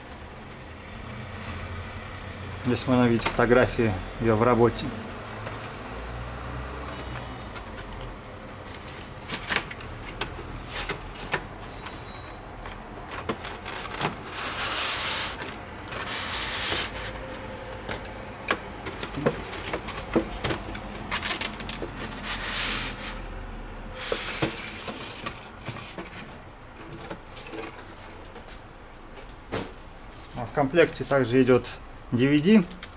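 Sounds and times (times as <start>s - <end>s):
foam scraping against cardboard: 14.2s - 17.2s, 22.0s - 23.3s.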